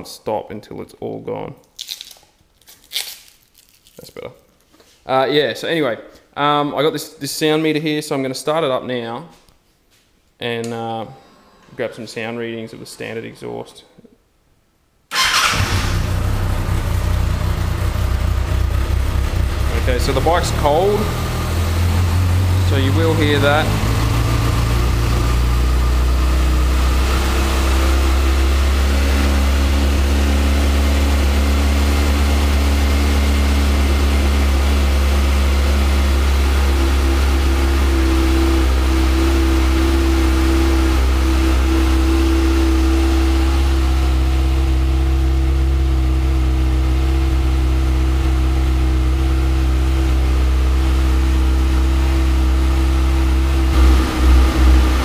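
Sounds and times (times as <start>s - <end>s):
motorcycle engine idling: 15.2s - 51.1s, 51.7s - 55.0s.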